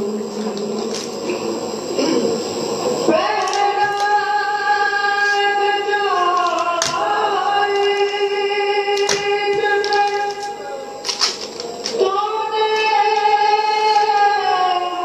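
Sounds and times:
person chanting a lament: 0:03.1 - 0:11.0, 0:12.0 - 0:15.0.

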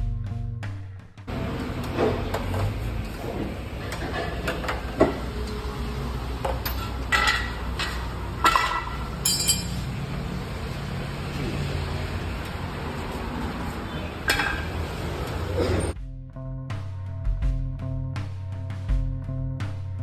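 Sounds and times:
low shop hum: 0:00.0 - 0:16.0
hand tools clanking on metal: 0:06.5 - 0:10.0, 0:14.2 - 0:14.8.

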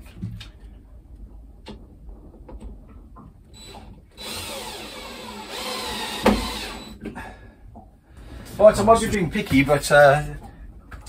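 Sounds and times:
cordless drill running: 0:03.6 - 0:07.0.

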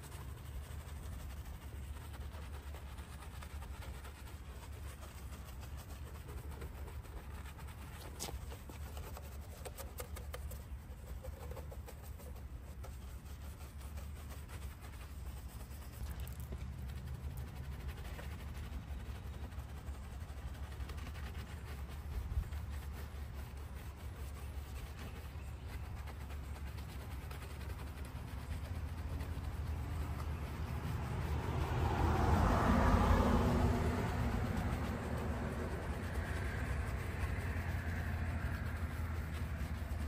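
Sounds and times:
brush scrubbing soapy paint: 0:00.0 - 0:40.0
steady low rumble: 0:26.1 - 0:40.0.

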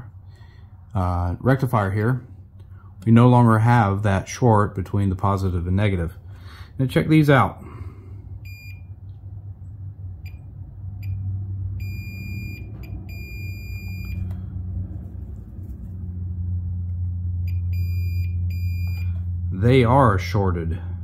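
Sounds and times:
low steady hum: 0:00.0 - 0:21.0
multimeter continuity beeps: 0:08.4 - 0:08.9, 0:11.8 - 0:14.3, 0:17.4 - 0:19.2.

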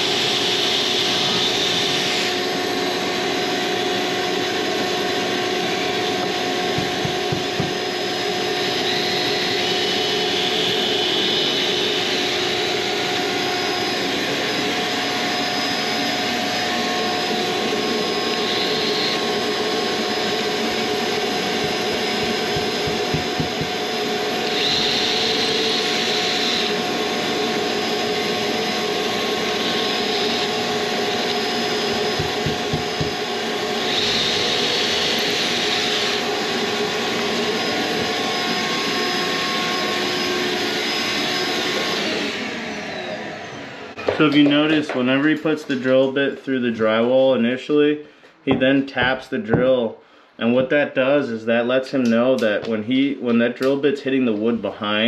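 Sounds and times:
cordless drill drilling: 0:00.0 - 0:44.0
shop vacuum running: 0:00.0 - 0:46.2.

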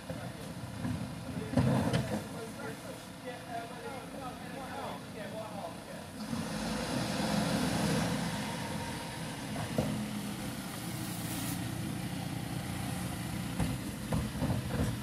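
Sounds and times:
truck engine running at low revs: 0:05.8 - 0:15.0.

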